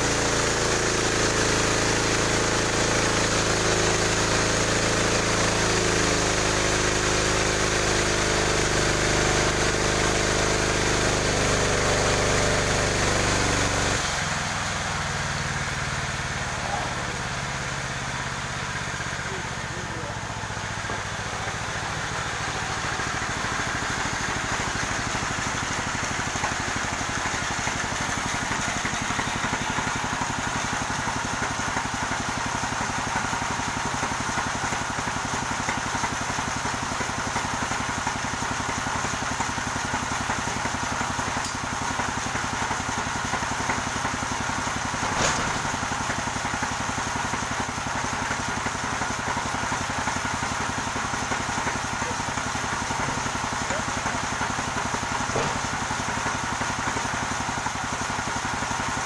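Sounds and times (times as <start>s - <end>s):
sawmill engine idling: 0.0s - 59.0s
sharp knock: 45.1s - 45.7s, 55.3s - 55.7s.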